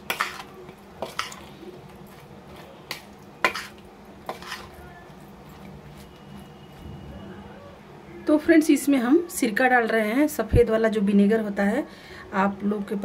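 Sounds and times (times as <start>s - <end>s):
mixture squelching: 0.0s - 6.9s.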